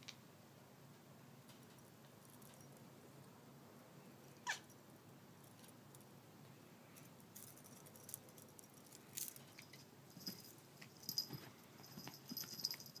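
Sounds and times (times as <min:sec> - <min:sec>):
faint metallic jingle: 0:01.7 - 0:02.9, 0:06.9 - 0:13.0
cat paws scrambling on carpet: 0:10.1 - 0:12.9.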